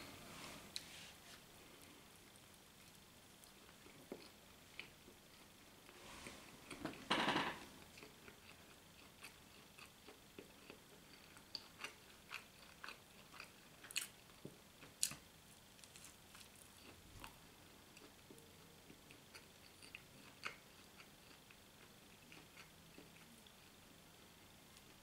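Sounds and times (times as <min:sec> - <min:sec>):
chewing sandwich: 0:02.2 - 0:06.9, 0:07.8 - 0:23.8.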